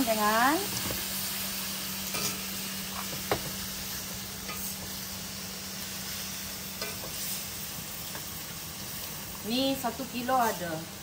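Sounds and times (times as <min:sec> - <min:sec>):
food sizzling in hot oil: 0:00.0 - 0:11.0.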